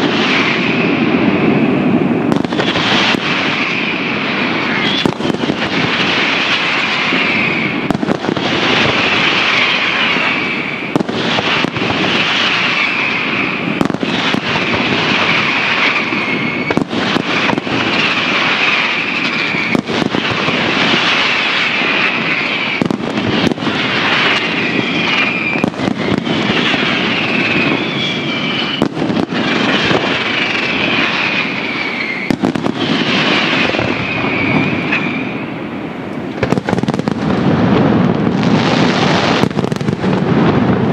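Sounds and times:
fireworks bursting and crackling: 0:00.0 - 0:40.9
sharp fireworks reports: 0:00.0 - 0:40.9
high falling whistle: 0:06.7 - 0:07.8, 0:12.4 - 0:13.6, 0:15.1 - 0:17.5, 0:18.7 - 0:19.8, 0:24.2 - 0:28.9, 0:30.2 - 0:35.6.

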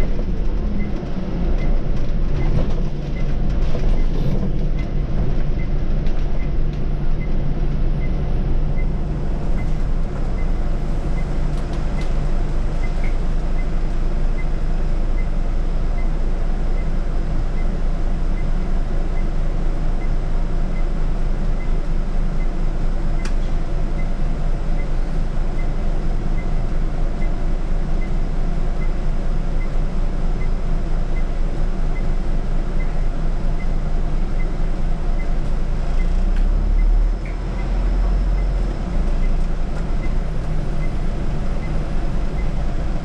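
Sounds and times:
bus diesel engine: 0:00.0 - 0:43.0
light repeating tick: 0:23.2 - 0:23.4.

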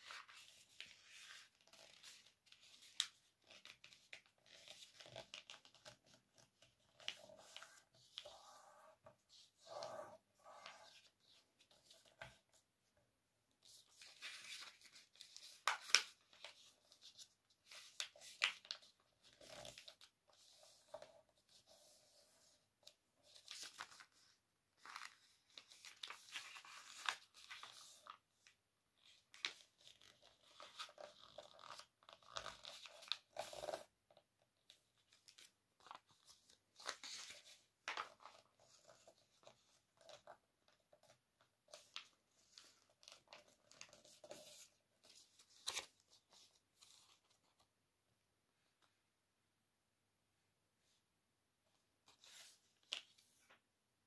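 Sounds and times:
paper rustling and crinkling: 0:00.0 - 0:08.3, 0:13.6 - 0:21.1, 0:22.1 - 0:33.8, 0:35.0 - 0:47.7.

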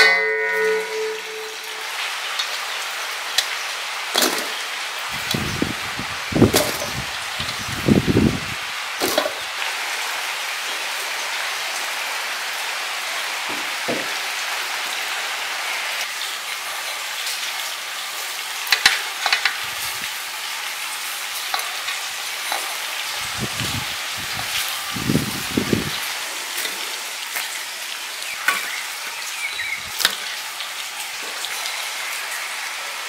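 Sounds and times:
steady hiss: 0:00.0 - 0:33.0.

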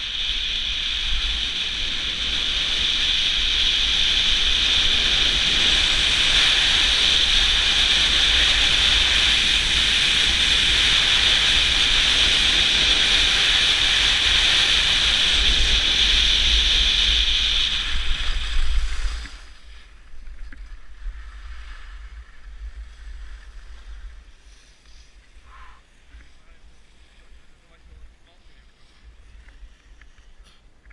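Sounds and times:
wind buffeting camera: 0:00.0 - 0:24.4.

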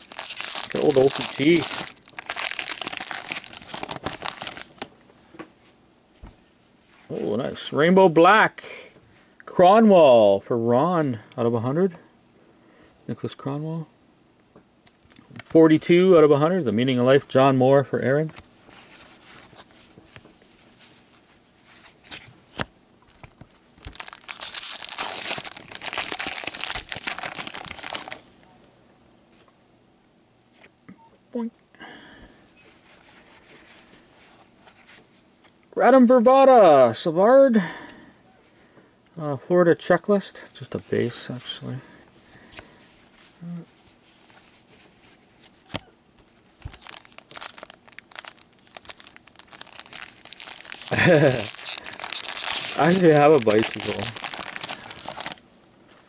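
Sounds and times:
wrapper tearing and crinkling: 0:00.0 - 0:04.9, 0:23.8 - 0:28.2, 0:46.6 - 0:55.4.

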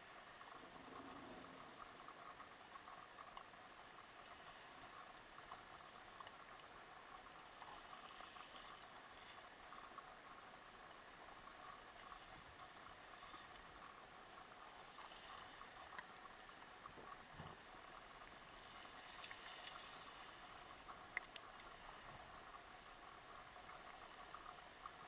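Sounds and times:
small crackling ticks: 0:00.0 - 0:25.0
underwater hiss: 0:07.4 - 0:09.8, 0:14.6 - 0:16.0, 0:17.9 - 0:22.9, 0:23.6 - 0:25.0.

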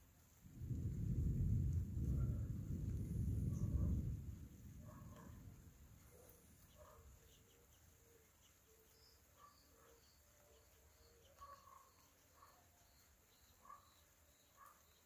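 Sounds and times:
thunder rumble: 0:00.0 - 0:06.7
faint bird chirps: 0:05.0 - 0:15.0.

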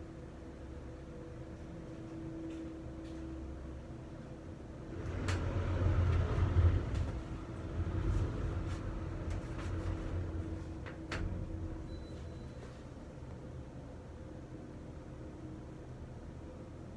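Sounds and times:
steady low hum: 0:00.0 - 0:16.9
passing vehicles rumble: 0:04.6 - 0:11.8.

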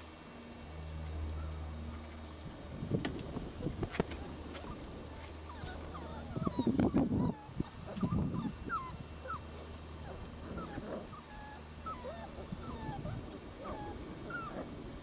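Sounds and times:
puppies whining and whimpering: 0:03.6 - 0:14.8.

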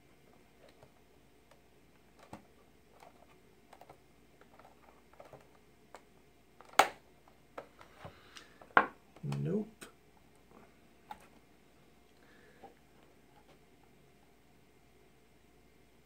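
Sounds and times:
sharp plastic snap: 0:06.6 - 0:07.0.

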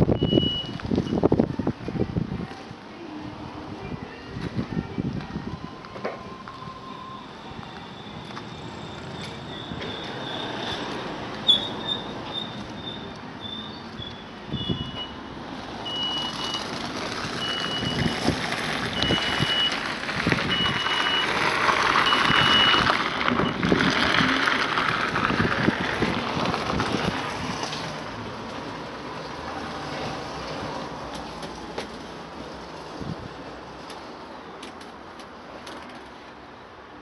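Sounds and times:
vehicle reversing alarm beeping: 0:00.0 - 0:01.3, 0:05.4 - 0:10.8, 0:11.5 - 0:18.2, 0:18.9 - 0:23.7.

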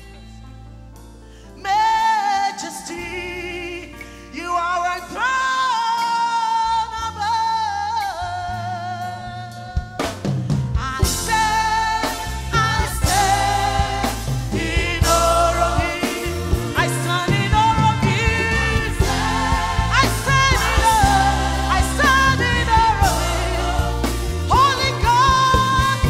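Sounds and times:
woman singing: 0:01.6 - 0:10.0, 0:10.8 - 0:26.0
band accompaniment: 0:08.8 - 0:26.0
drum kit: 0:09.0 - 0:26.0.

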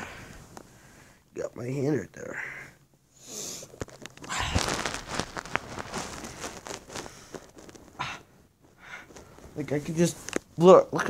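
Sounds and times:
fabric and bedding rustling: 0:03.6 - 0:10.8.

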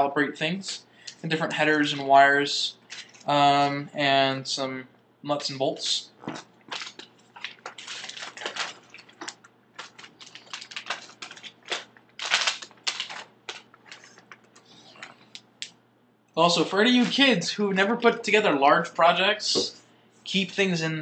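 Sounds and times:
plastic bag rustle: 0:06.2 - 0:15.3
plastic bags crinkling: 0:06.2 - 0:15.5.

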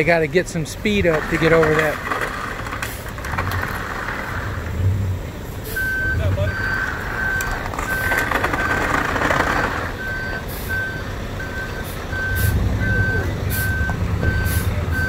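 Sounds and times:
truck engine running: 0:00.0 - 0:15.0
reversing alarm beeping: 0:05.6 - 0:15.0.

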